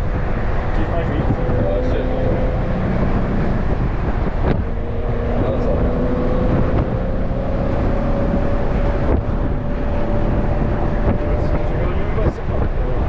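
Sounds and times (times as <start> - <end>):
car engine cruising: 0.0 - 13.0
wind rushing through cabin: 0.0 - 13.0.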